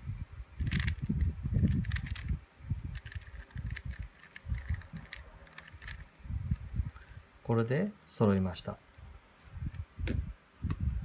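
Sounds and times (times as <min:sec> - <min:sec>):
plastic cube clicks and clacks: 0:00.6 - 0:02.3, 0:02.9 - 0:06.1.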